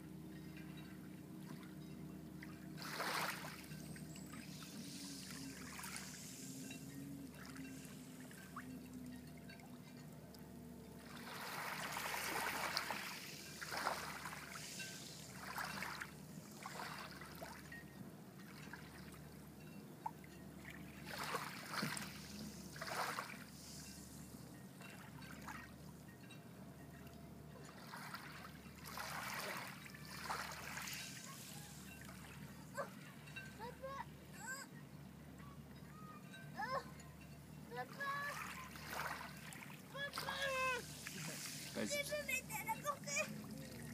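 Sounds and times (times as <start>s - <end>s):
shallow seawater swishing: 2.8s - 8.7s, 11.0s - 17.8s, 21.0s - 25.7s, 27.6s - 33.0s, 37.8s - 43.9s.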